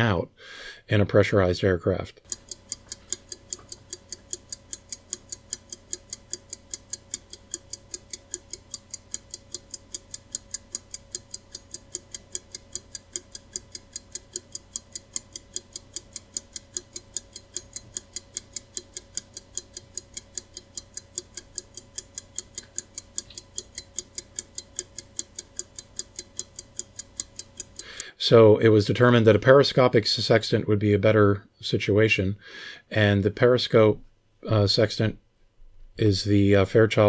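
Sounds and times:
faint steady hum: 0.0s - 37.0s
clockwork ticking: 2.2s - 28.0s.

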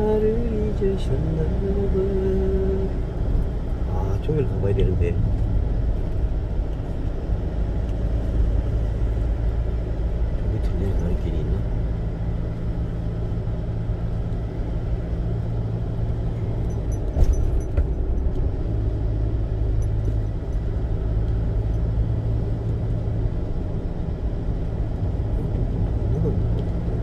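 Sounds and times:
car engine and tyres rumbling: 0.0s - 27.0s.

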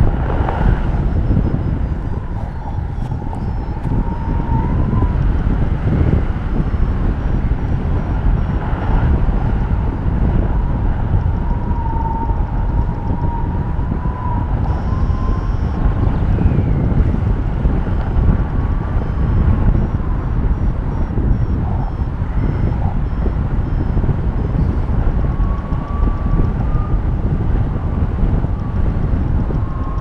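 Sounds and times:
wind buffeting microphone: 0.0s - 30.0s
faint thin wavering tone: 1.1s - 5.2s.

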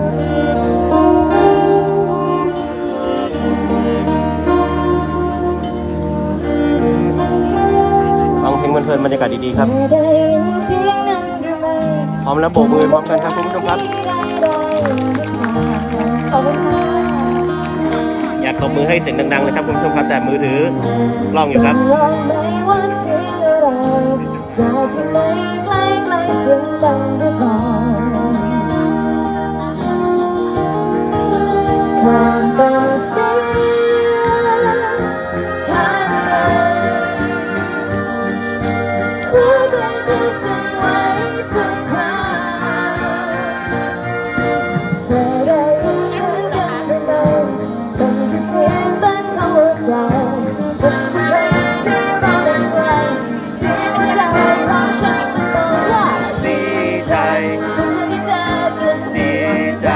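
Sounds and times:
woman singing into microphone: 0.0s - 8.4s, 9.5s - 12.8s, 13.4s - 18.4s, 21.6s - 38.0s, 39.1s - 59.9s
keyboard: 0.0s - 59.9s
live band playing: 0.0s - 59.9s
saxophone: 0.0s - 59.9s.

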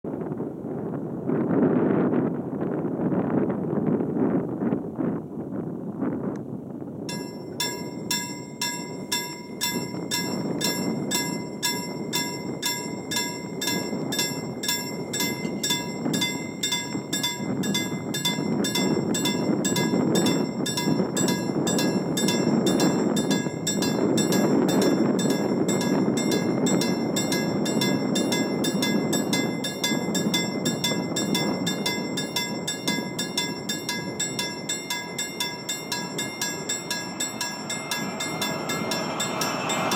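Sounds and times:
level crossing bell ringing: 7.1s - 39.9s
train rumbling: 7.1s - 39.9s.

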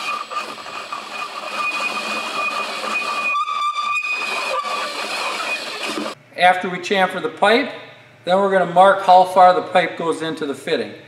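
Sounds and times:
drill chamfering metal pipe: 0.0s - 6.2s.

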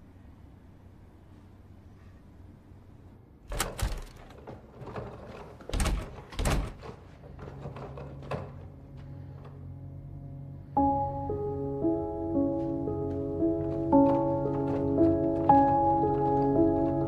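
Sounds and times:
steady low hum: 0.0s - 17.0s
door opening and shutting: 3.4s - 9.6s, 12.4s - 17.0s.

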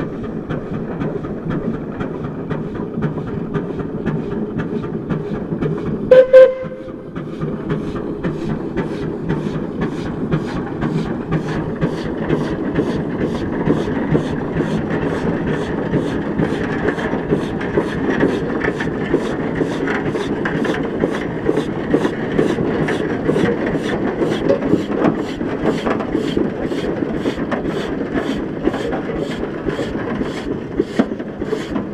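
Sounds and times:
steam engine exhaust chuffing: 0.0s - 31.9s
steam whistle toot: 6.1s - 6.9s.

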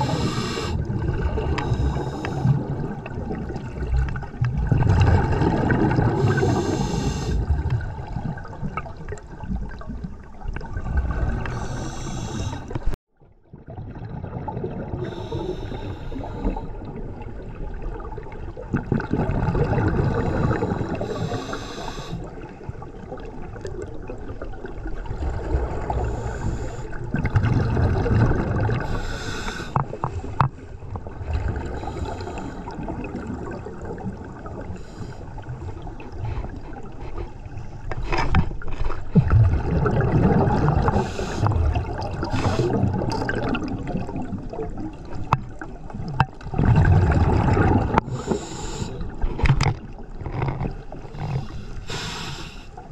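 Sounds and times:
regulator hiss on inhale: 0.0s - 0.8s, 1.6s - 2.6s, 6.2s - 7.4s, 11.5s - 12.9s, 15.0s - 16.6s, 20.4s - 22.3s, 26.1s - 27.0s, 28.8s - 29.8s, 31.8s - 32.7s, 34.8s - 35.4s, 41.0s - 41.5s, 48.1s - 49.1s, 51.4s - 52.8s
exhaled bubbles gushing: 0.0s - 12.9s, 13.5s - 30.2s, 30.8s - 51.8s.

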